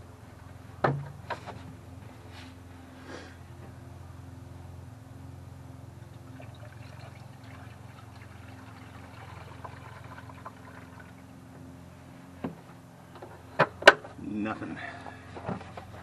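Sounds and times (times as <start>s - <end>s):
fluid pouring from plastic jug: 6.3s - 11.2s.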